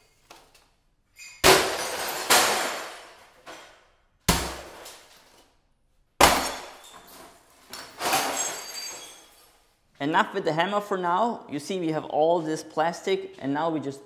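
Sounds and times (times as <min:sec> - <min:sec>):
breaking pieces clattering: 0:01.2 - 0:05.4, 0:06.2 - 0:09.6
sledgehammer smashing objects: 0:01.4 - 0:03.6, 0:04.2 - 0:05.1, 0:06.2 - 0:06.9.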